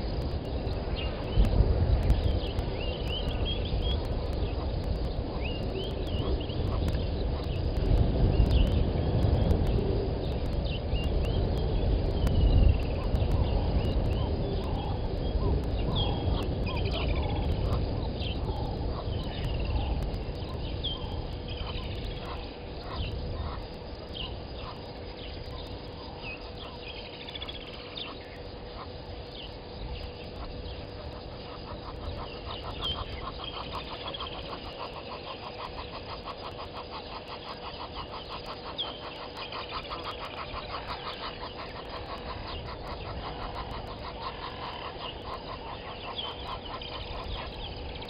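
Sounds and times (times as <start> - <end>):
birds chirping: 0.0 - 48.0
rapid bird trill: 10.6 - 48.0.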